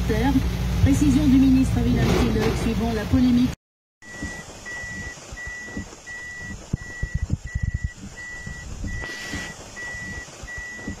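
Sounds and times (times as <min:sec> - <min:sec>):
heavy rain on vehicle: 0:04.0 - 0:11.0
vehicle warning beeper: 0:04.0 - 0:11.0.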